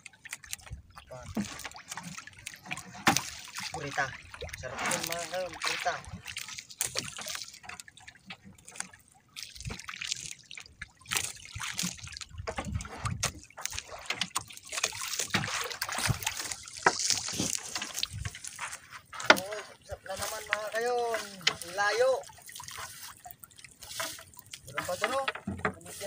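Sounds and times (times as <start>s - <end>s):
sea water sloshing and splashing: 0.0s - 26.0s
knocks on boat: 25.0s - 25.9s.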